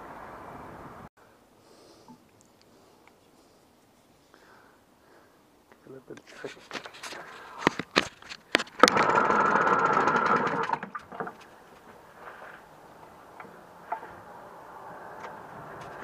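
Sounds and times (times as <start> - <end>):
pull-start clicks and knocks: 8.5 - 11.4
outboard motor running: 8.8 - 11.2.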